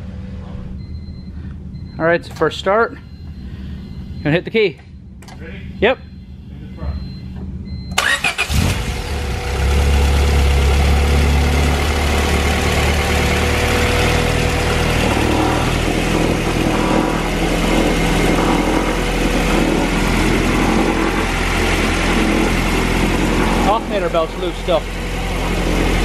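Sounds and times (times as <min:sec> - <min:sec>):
car engine idling: 0:07.4 - 0:26.0.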